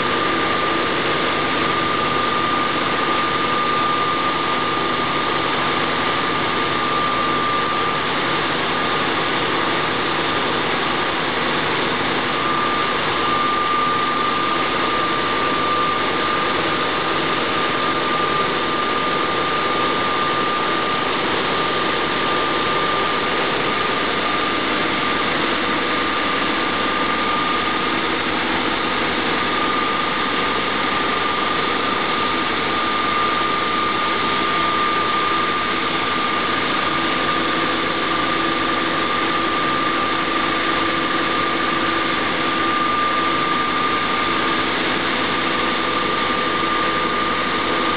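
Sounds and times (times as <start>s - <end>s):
diesel engine running: 0.0s - 47.9s
high whine: 0.0s - 47.9s.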